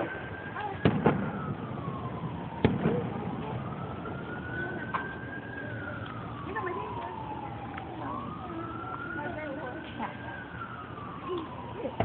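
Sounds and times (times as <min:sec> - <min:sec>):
siren wailing: 0:00.0 - 0:12.0
firework bang: 0:00.8 - 0:03.8.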